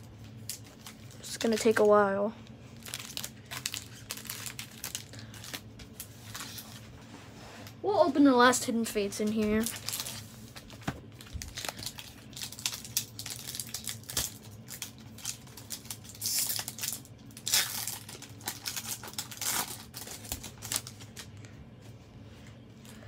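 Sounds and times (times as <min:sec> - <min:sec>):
foil wrapper ripping: 0:00.0 - 0:01.9, 0:02.7 - 0:06.8, 0:09.3 - 0:21.4
foil wrapper crinkling: 0:00.0 - 0:06.8, 0:09.2 - 0:21.4.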